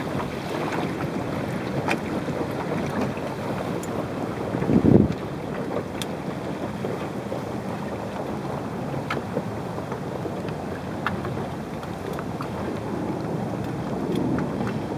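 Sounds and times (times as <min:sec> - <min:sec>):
wind and water rushing: 0:00.0 - 0:14.9
wind buffeting microphone: 0:00.0 - 0:14.9
light ticks: 0:03.8 - 0:04.0, 0:06.0 - 0:06.2.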